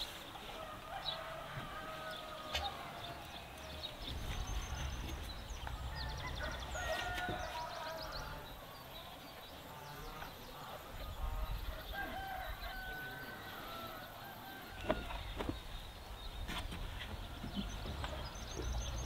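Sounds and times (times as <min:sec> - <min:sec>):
chickens calling: 0:00.0 - 0:19.0
small birds chirping trills: 0:00.0 - 0:19.0
rooster crowing: 0:00.6 - 0:03.3, 0:05.9 - 0:08.5, 0:11.8 - 0:15.3.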